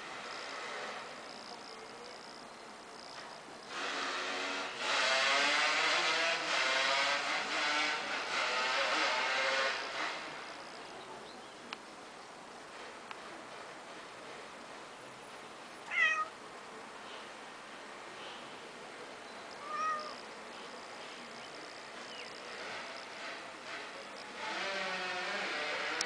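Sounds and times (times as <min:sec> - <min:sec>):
cat meowing: 0:15.9 - 0:16.3, 0:19.6 - 0:20.2.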